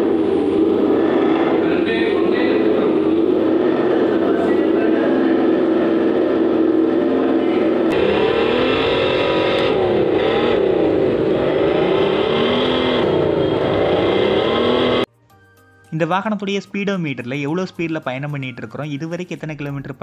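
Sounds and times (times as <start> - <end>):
simulated motorcycle engine revving: 0.0 - 15.1.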